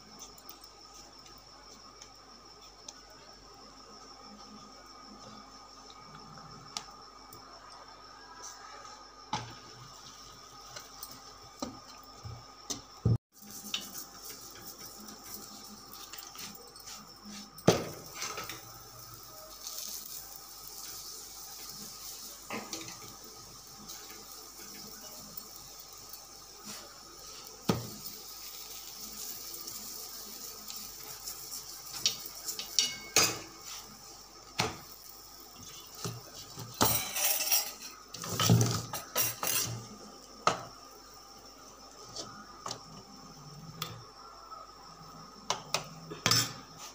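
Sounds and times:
gas stove hiss: 0.0s - 46.9s
pan and utensils knocking: 31.9s - 33.6s, 36.0s - 39.8s.

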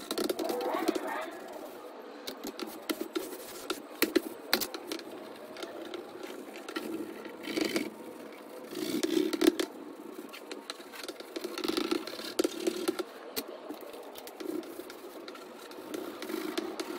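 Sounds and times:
drawing stick scratching on panel: 2.5s - 13.0s.

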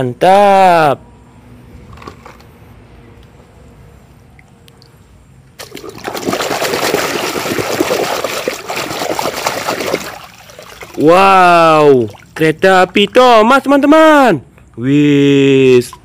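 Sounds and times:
hand splashing in water: 5.6s - 11.1s.

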